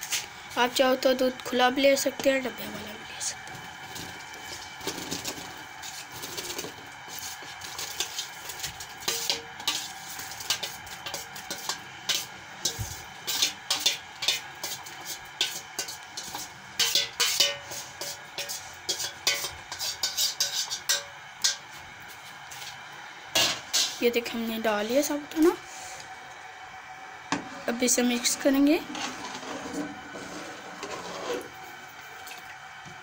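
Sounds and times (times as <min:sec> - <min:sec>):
metal strainer clinking on a pot: 0:16.3 - 0:21.6.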